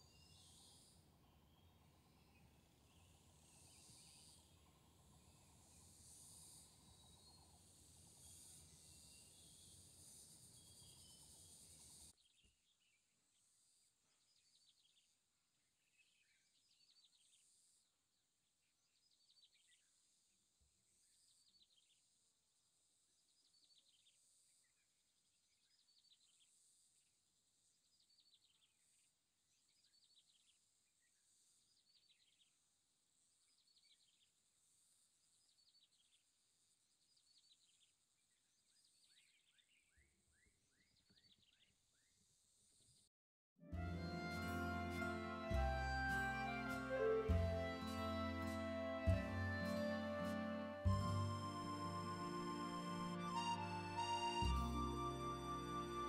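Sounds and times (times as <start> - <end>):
high insect drone: 2.9 - 12.1
low rumbling hiss: 43.8 - 56.0.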